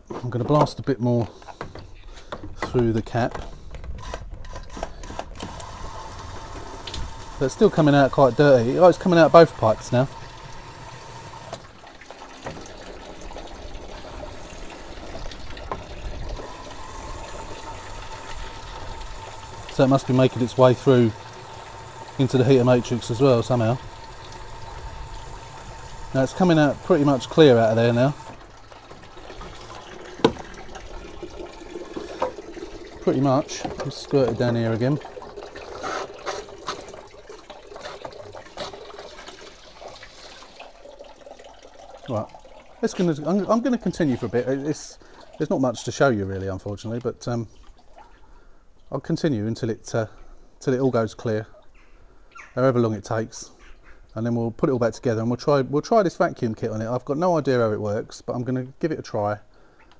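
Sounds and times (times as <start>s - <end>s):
water gushing into a bucket: 5.0s - 50.2s.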